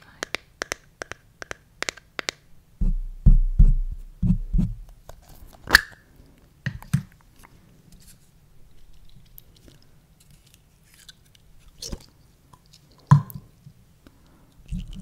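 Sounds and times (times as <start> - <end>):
dull low thumps: 2.8 - 4.9.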